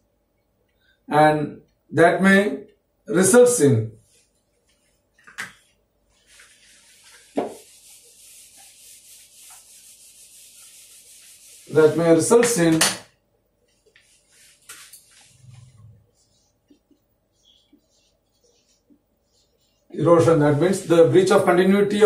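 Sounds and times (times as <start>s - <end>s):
eraser wiping a whiteboard: 4.0s - 12.6s, 13.7s - 21.5s.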